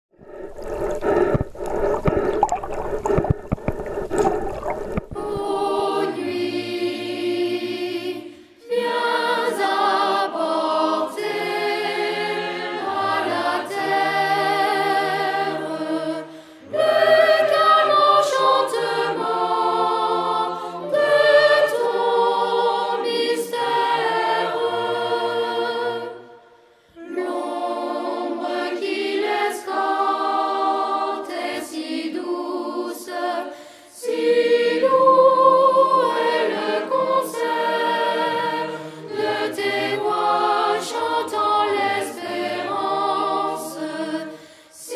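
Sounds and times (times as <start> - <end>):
underwater water noise: 0.1 - 6.1
choral music: 0.2 - 44.9.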